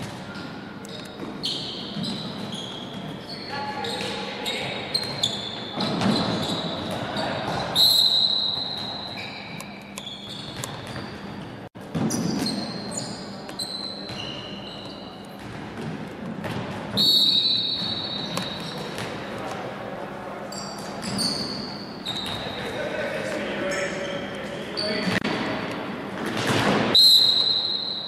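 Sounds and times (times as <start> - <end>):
shoe squeaks: 0.3 - 15.4, 17.0 - 19.2, 20.5 - 22.8, 23.6 - 25.2
players' voices: 18.6 - 26.0.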